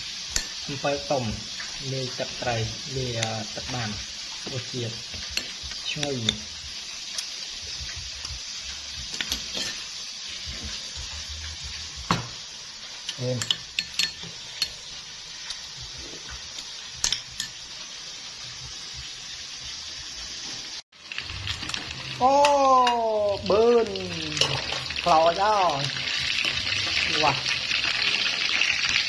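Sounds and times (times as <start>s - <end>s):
frying sizzle: 0.0s - 29.0s
spoon clinking against bowl: 13.0s - 14.8s.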